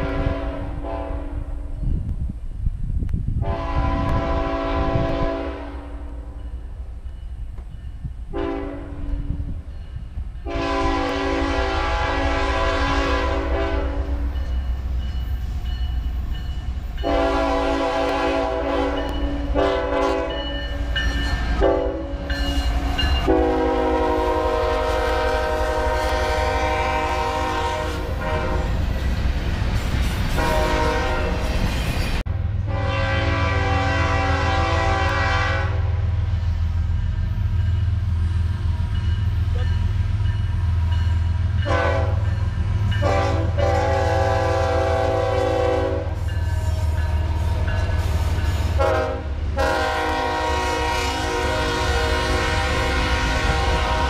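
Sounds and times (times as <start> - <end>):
locomotive air horn blasts: 0.0 - 1.6, 3.4 - 6.2, 8.3 - 9.4, 10.4 - 14.4, 17.0 - 20.5, 21.6 - 22.4, 23.2 - 28.8, 30.3 - 31.5, 32.6 - 36.0, 41.6 - 54.0
train cars rolling past: 0.0 - 54.0.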